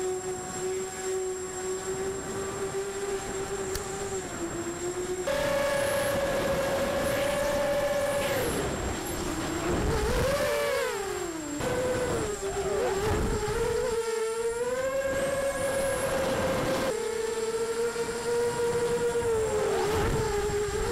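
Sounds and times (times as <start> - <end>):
quadcopter motors whining: 0.0 - 20.9
wind noise: 1.8 - 14.0, 18.0 - 20.9.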